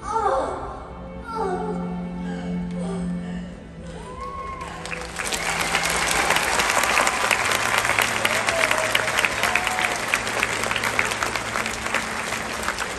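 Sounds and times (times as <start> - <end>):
audience applauding: 4.2 - 12.9.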